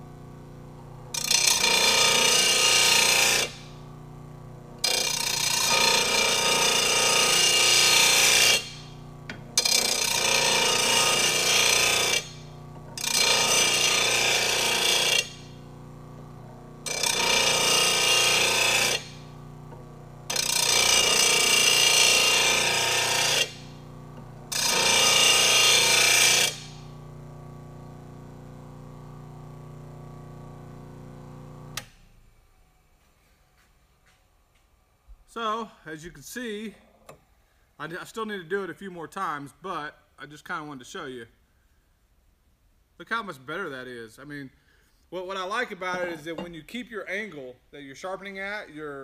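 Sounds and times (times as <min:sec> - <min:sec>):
grinding wheel grinding steel blade: 0:00.0 - 0:31.9, 0:45.9 - 0:46.5
sharpener motor running: 0:00.0 - 0:32.0.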